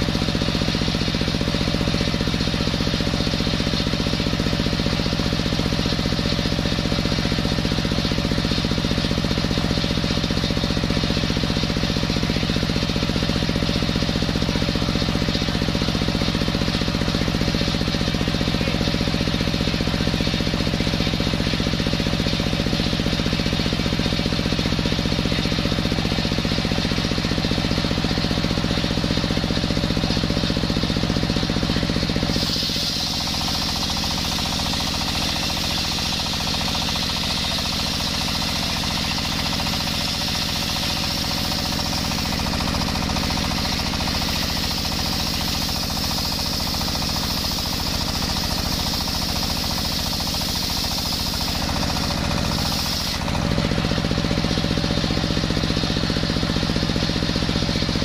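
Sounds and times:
diesel engine running: 0.0 - 58.0
circular saw cutting log: 32.1 - 55.0.

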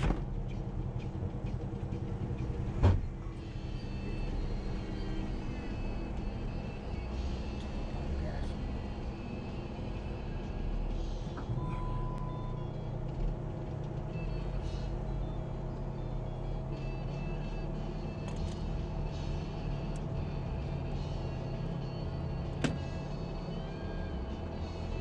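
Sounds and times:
engine droning: 0.0 - 25.0.

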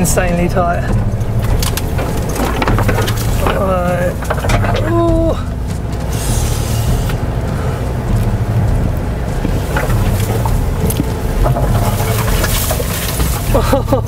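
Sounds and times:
car engine running: 0.0 - 14.0
branches scraping car body: 1.0 - 14.0
sharp knocks: 1.2 - 5.1.

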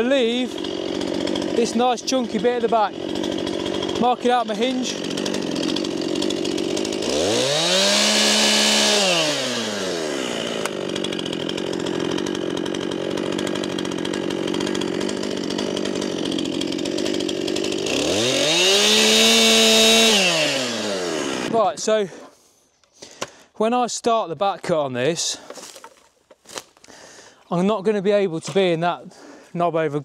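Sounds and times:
chainsaw idling and revving: 0.0 - 22.0.

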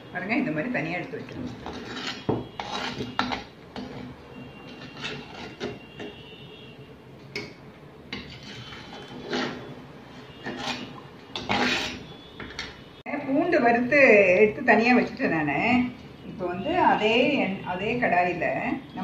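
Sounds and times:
metal skimmer scraping a pot: 1.4 - 6.2, 8.1 - 12.1.

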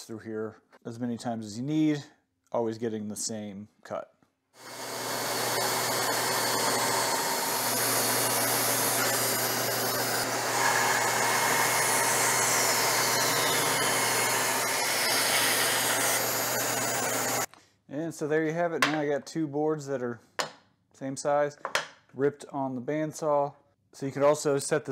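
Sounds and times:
band saw running: 4.6 - 17.5.

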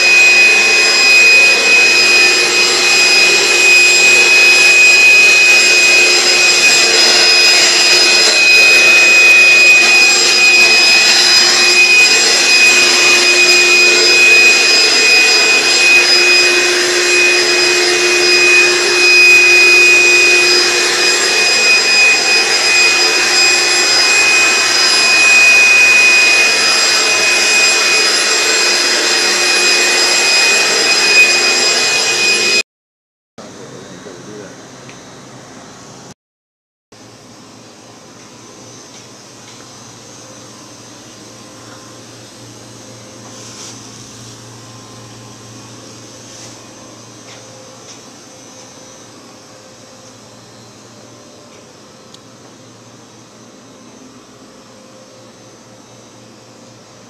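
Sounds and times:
motor running with high whine: 0.0 - 32.6.

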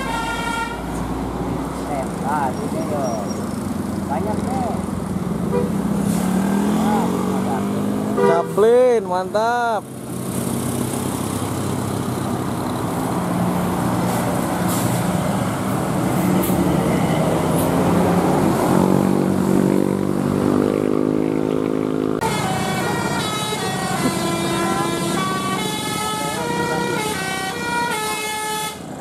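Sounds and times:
musical bus horn playing tune: 0.0 - 0.9, 5.5 - 5.8, 8.2 - 8.6, 22.2 - 28.9
bus diesel engine running: 8.2 - 20.2, 22.1 - 29.0.

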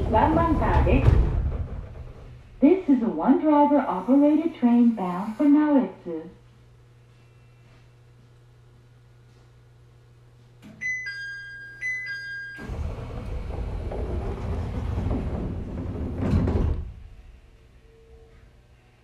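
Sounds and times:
door closing thud: 0.0 - 2.4, 12.6 - 17.1
sliding doors running shut: 0.0 - 3.3, 12.6 - 17.6
train door chime: 10.8 - 12.8.

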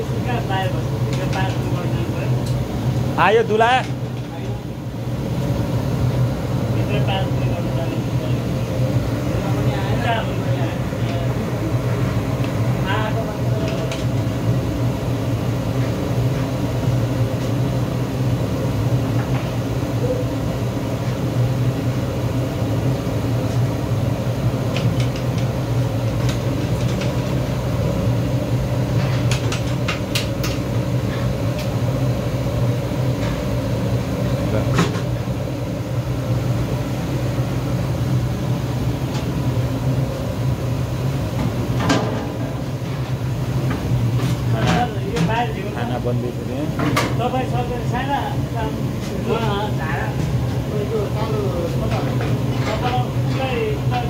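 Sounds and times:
gas burner roar: 0.0 - 54.0.

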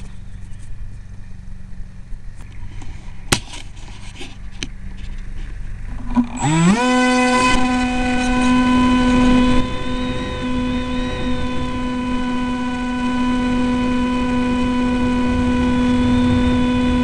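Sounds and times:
electric motor and propeller whine: 0.0 - 17.0
handling noise: 2.3 - 6.5.

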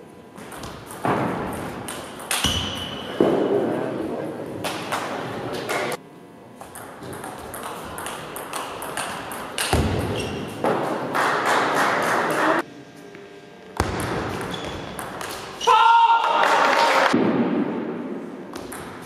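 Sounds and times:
crowd noise: 3.1 - 6.0, 11.3 - 12.6.

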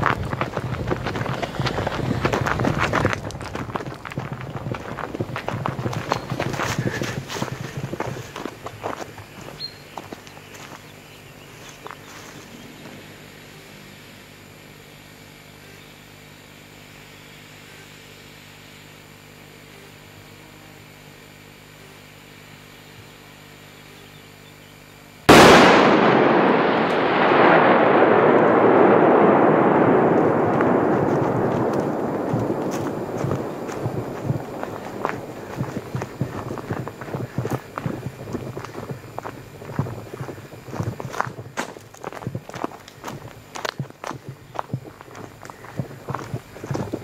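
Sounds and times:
firecracker bang: 25.3 - 41.4
long rushing rumble: 25.3 - 43.6.

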